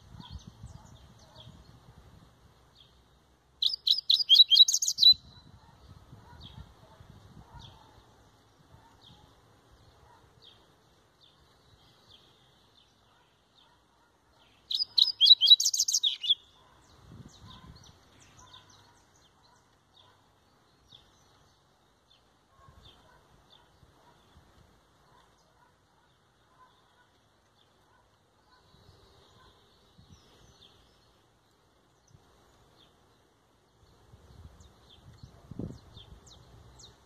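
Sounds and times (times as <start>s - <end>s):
bird chip calls: 3.6s - 5.5s, 14.4s - 20.2s
bird song burst: 3.6s - 6.7s, 14.4s - 24.4s.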